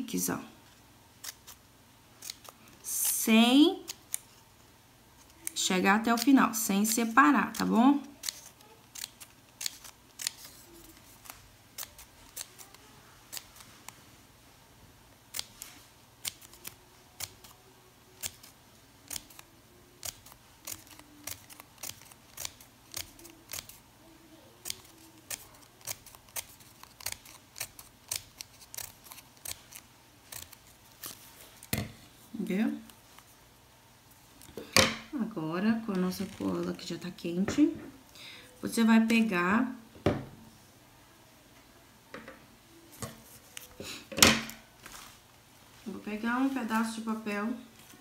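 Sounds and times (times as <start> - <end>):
scissors snipping paper: 2.2 - 3.2, 5.2 - 13.7, 15.3 - 23.8, 24.6 - 31.7.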